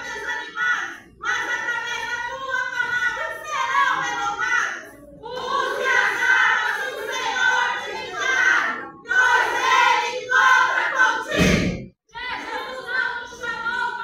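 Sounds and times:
women chanting in unison: 0:00.0 - 0:14.0
loud thump: 0:11.3 - 0:11.9.

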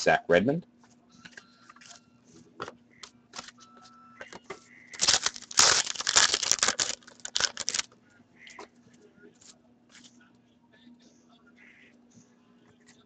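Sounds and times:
foil wrapper crinkling: 0:05.0 - 0:07.9.

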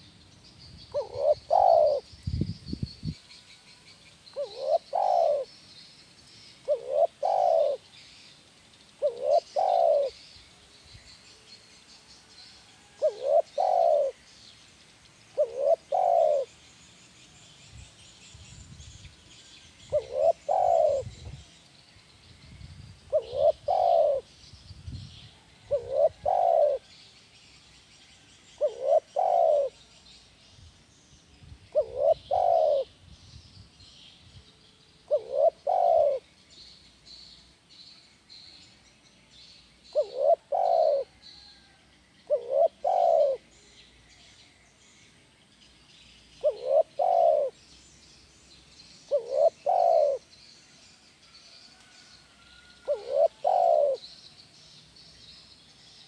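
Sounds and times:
small birds chirping: 0:00.0 - 0:56.0
dove cooing: 0:00.9 - 0:02.1, 0:04.4 - 0:05.5, 0:06.6 - 0:07.9, 0:09.0 - 0:10.2, 0:12.8 - 0:14.2, 0:15.4 - 0:16.6, 0:19.9 - 0:21.4, 0:23.1 - 0:24.3, 0:25.4 - 0:26.9, 0:28.6 - 0:29.9, 0:31.7 - 0:33.0, 0:35.1 - 0:36.3, 0:39.9 - 0:43.5, 0:46.4 - 0:47.6, 0:49.1 - 0:50.3, 0:52.8 - 0:54.2.

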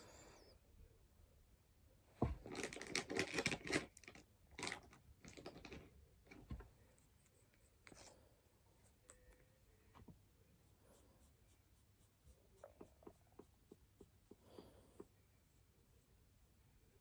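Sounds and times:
small objects clicking and rattling: 0:02.5 - 0:06.4.

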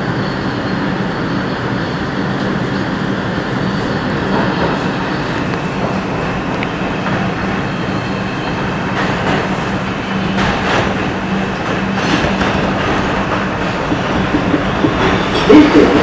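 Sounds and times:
subway train wheels rumbling: 0:00.0 - 0:16.0
sharp track clacks: 0:08.8 - 0:16.0.

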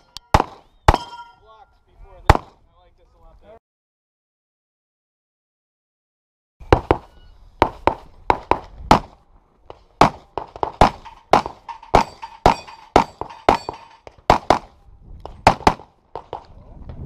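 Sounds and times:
rapid pistol shots: 0:00.3 - 0:01.1, 0:10.0 - 0:14.7, 0:15.4 - 0:16.4.

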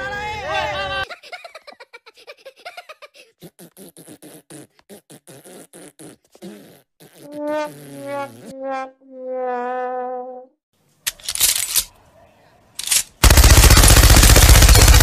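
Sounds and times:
sputtering cartoon voice pulses: 0:03.4 - 0:08.5.

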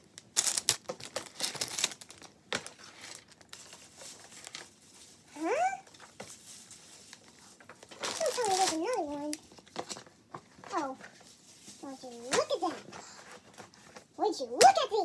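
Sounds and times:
plastic packaging crinkling: 0:00.0 - 0:14.1.

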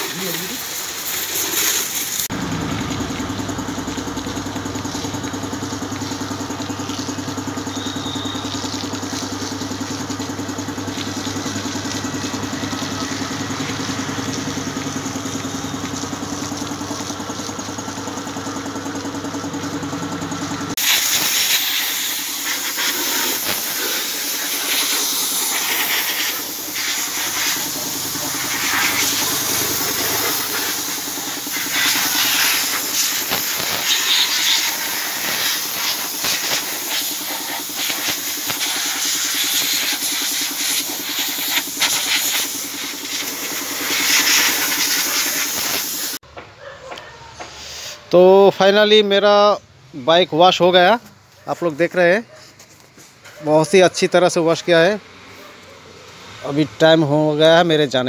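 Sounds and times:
pressure washer motor hum: 0:00.0 - 0:46.2
water jet hissing: 0:00.0 - 0:46.2.

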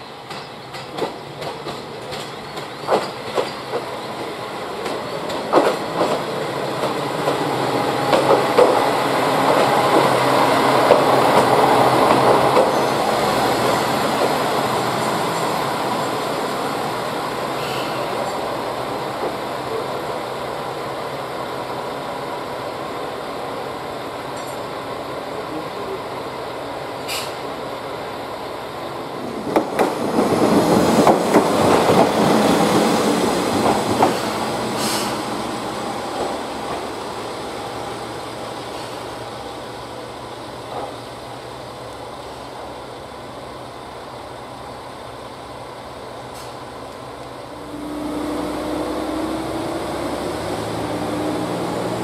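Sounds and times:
diesel railcar engine and rail noise: 0:00.0 - 0:52.0.

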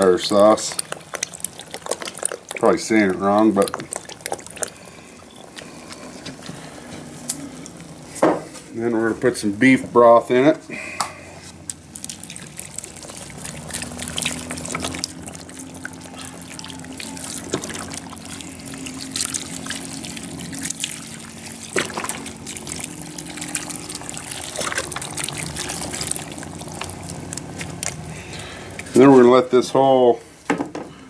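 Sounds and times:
crackles: 0:00.0 - 0:08.6, 0:11.4 - 0:29.1
broth trickling into a pot: 0:00.0 - 0:29.9.

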